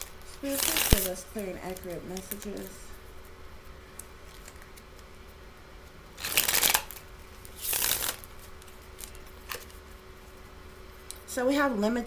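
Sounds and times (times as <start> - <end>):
cards being shuffled: 0.3 - 3.3, 6.2 - 9.9.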